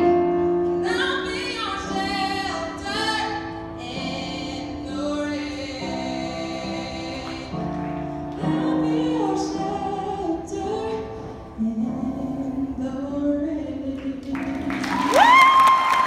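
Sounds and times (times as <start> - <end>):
piano chords: 0.0 - 16.0
woman singing: 0.7 - 16.0
people clapping: 14.2 - 16.0.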